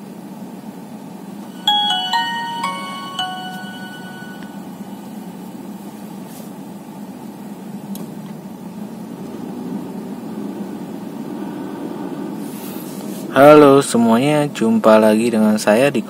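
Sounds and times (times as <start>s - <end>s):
phone startup tune: 1.6s - 5.2s.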